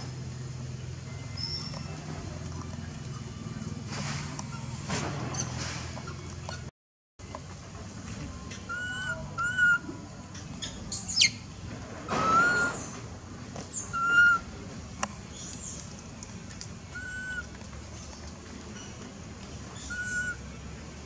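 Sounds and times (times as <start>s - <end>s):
falling squeak: 1.2s - 2.1s, 4.1s - 6.7s, 12.1s - 13.0s
monkey coo calls: 8.5s - 9.9s, 12.2s - 12.9s, 13.7s - 14.5s, 16.9s - 17.5s, 19.8s - 20.4s.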